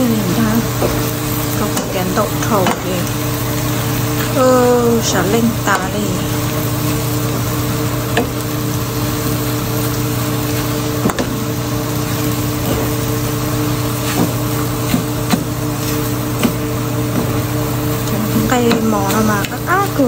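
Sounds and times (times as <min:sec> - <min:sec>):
food sizzling in a frying pan: 0:00.0 - 0:20.0
steady mechanical hum: 0:00.0 - 0:20.0
spatula knocking and scraping pan: 0:00.6 - 0:03.0, 0:11.0 - 0:13.1, 0:13.8 - 0:17.5.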